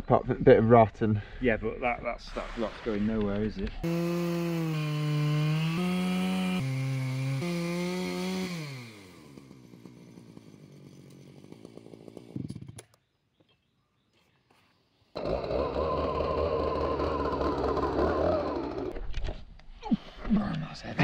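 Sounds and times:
chainsaw ripping a log: 0:03.8 - 0:13.0, 0:15.2 - 0:19.2.

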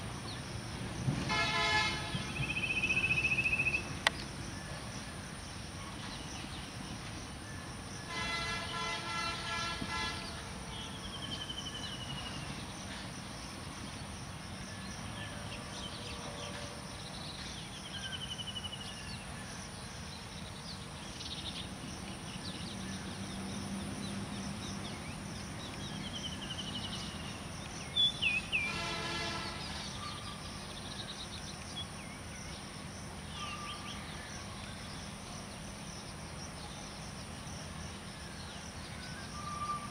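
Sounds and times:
diesel locomotive horn: 0:01.2 - 0:02.4, 0:08.0 - 0:11.1, 0:28.5 - 0:30.1.

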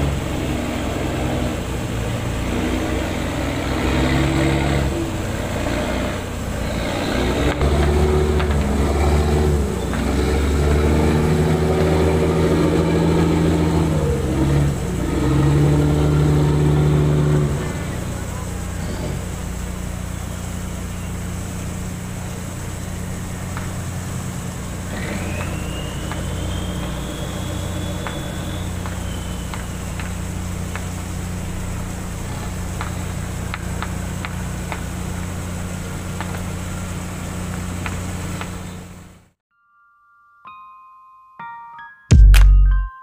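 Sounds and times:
boat diesel engine droning: 0:00.0 - 0:39.4
thin whistle: 0:24.8 - 0:30.8.

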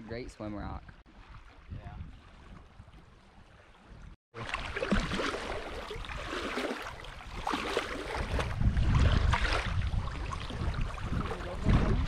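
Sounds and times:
small waves lapping: 0:00.0 - 0:12.0
water splashing from scrubbing clothes: 0:04.4 - 0:12.0.

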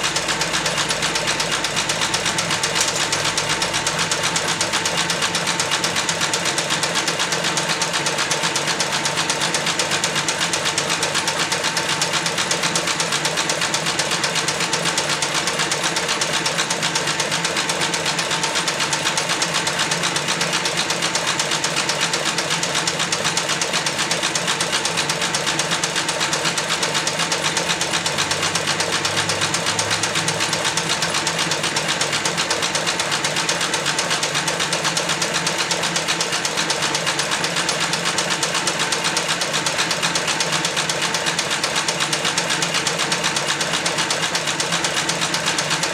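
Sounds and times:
leather sewing machine stitching: 0:00.0 - 0:45.9.

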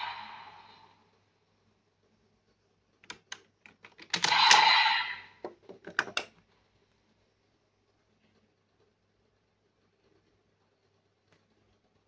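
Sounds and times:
plastic toy parts clicking: 0:03.0 - 0:04.7, 0:05.7 - 0:06.4.

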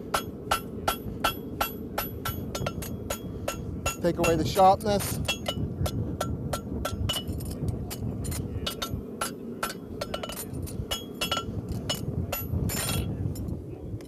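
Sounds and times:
hammer tapping metal on anvil: 0:00.1 - 0:04.5, 0:08.6 - 0:13.0.

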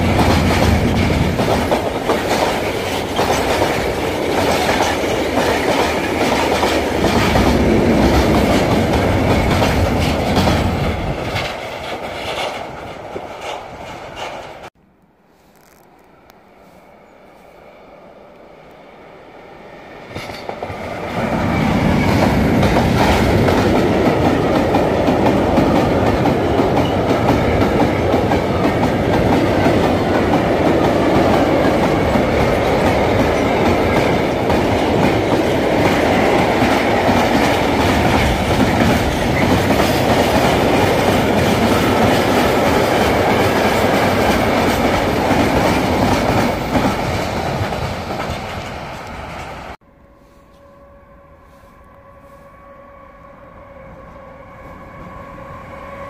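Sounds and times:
freight train wheels clattering: 0:00.0 - 0:14.7, 0:20.1 - 0:49.6.

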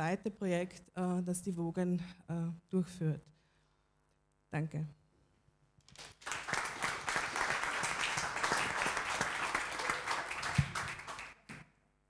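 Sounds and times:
audience applauding: 0:05.9 - 0:11.6.

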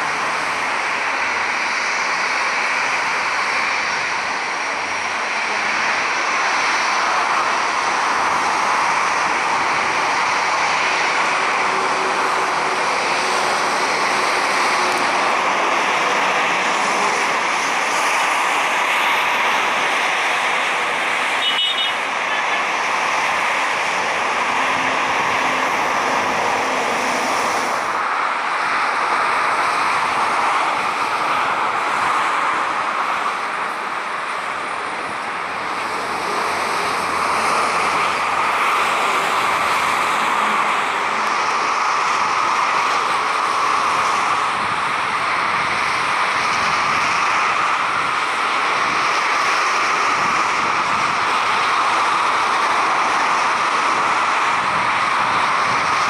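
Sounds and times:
jet engines running: 0:00.0 - 0:56.0.

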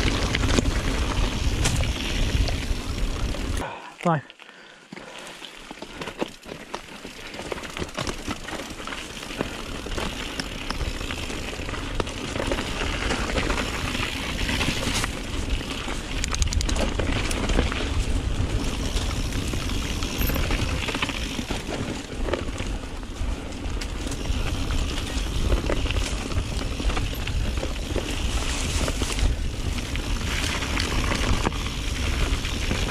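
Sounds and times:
bike rattles and knocks: 0:00.0 - 0:03.6, 0:05.8 - 0:32.9
bike tyre noise on trail: 0:00.0 - 0:32.9
wind rumble on microphone: 0:12.4 - 0:32.9.

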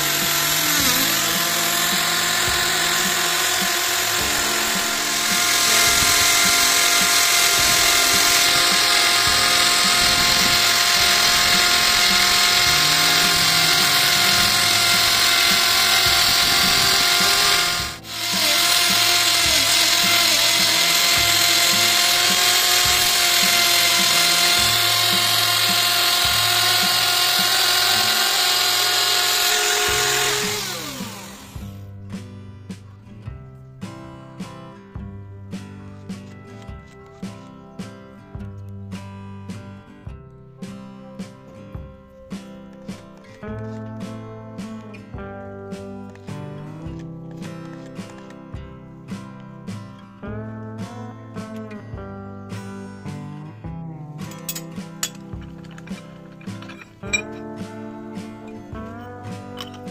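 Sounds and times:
grinding stone hiss: 0:00.0 - 0:31.8
electric drill motor whine: 0:00.0 - 0:31.9.

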